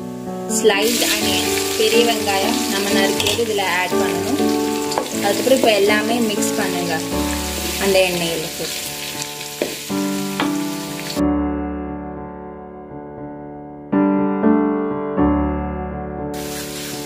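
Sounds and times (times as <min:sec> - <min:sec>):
background music sustained notes: 0:00.0 - 0:13.9
onions sizzling in hot oil: 0:00.6 - 0:11.2, 0:16.4 - 0:17.0.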